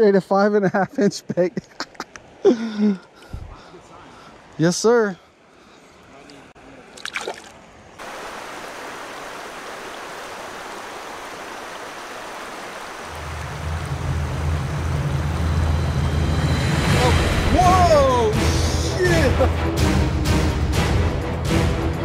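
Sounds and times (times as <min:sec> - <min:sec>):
creek water running over rocks: 0:06.2 - 0:15.5
small fish splashing into water: 0:07.0 - 0:07.6.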